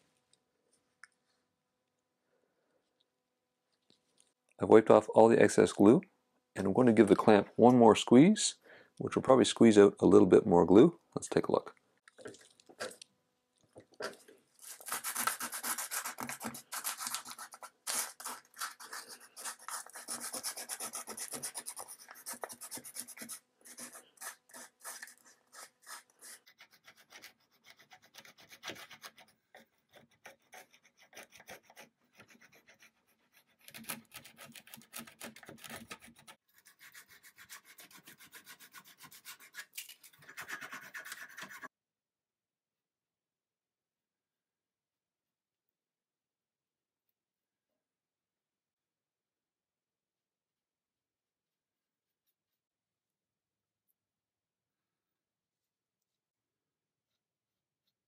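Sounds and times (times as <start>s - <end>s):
sandpaper rubbing on wood: 14.7s - 29.3s, 29.9s - 41.7s.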